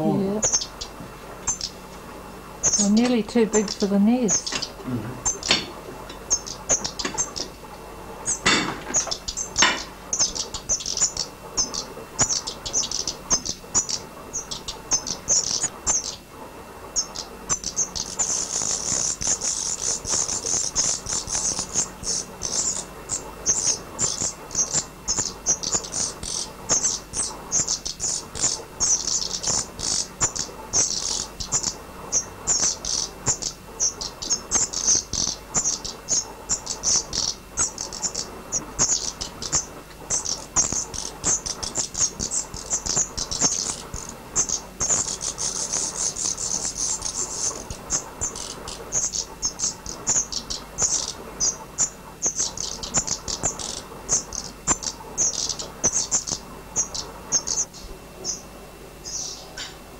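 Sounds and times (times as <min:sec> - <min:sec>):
nestlings begging chirps: 0:00.0 - 0:59.8
sharp knocks: 0:04.5 - 0:06.2, 0:08.4 - 0:09.9.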